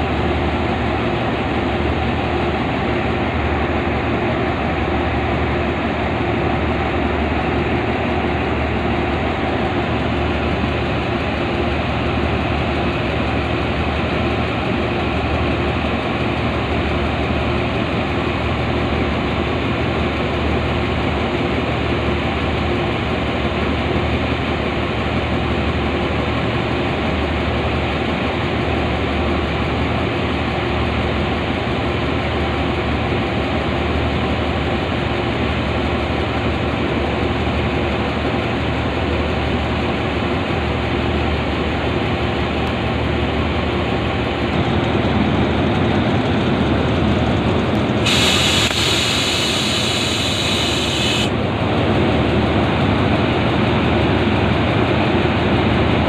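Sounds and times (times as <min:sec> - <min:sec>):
air release hiss: 0:48.0 - 0:51.3.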